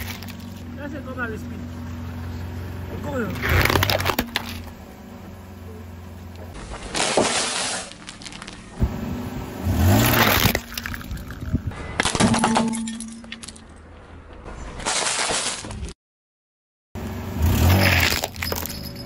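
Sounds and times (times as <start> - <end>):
tyre crushing plastic toys: 3.4 - 4.7, 6.6 - 8.8, 14.8 - 16.0, 17.7 - 18.8.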